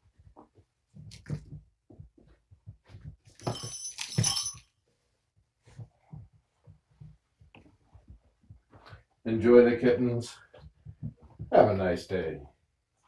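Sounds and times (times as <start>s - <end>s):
clattering clinking rattle: 3.4s - 4.7s.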